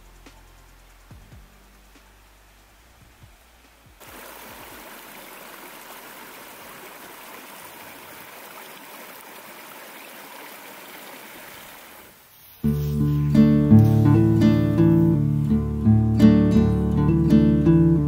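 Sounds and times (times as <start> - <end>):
stream running over rocks: 0.0 - 13.1.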